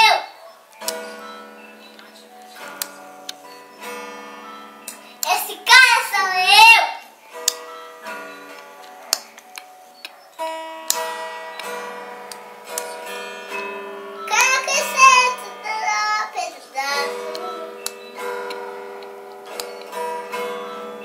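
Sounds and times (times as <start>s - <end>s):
acoustic guitar strumming: 0.0s - 21.0s
child singing: 5.3s - 7.1s, 14.3s - 17.8s.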